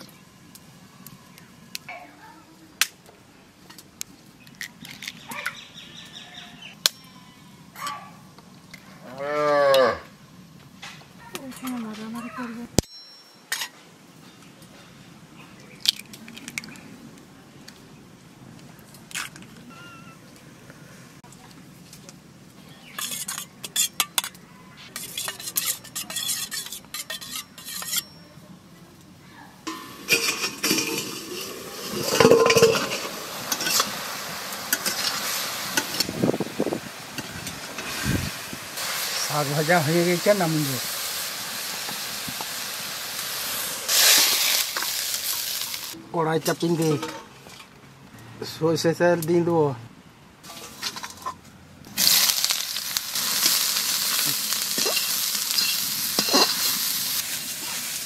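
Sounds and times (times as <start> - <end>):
cow mooing: 9.0 - 10.1.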